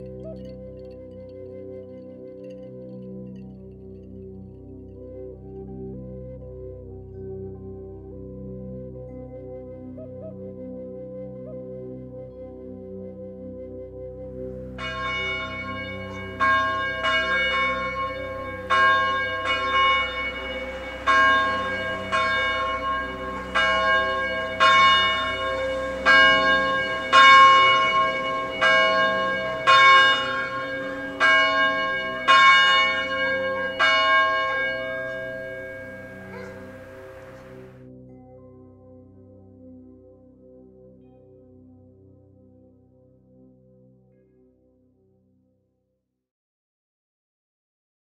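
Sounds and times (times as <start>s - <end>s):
ambient music with held tones: 0.0s - 45.1s
church bell tolling: 14.8s - 37.7s.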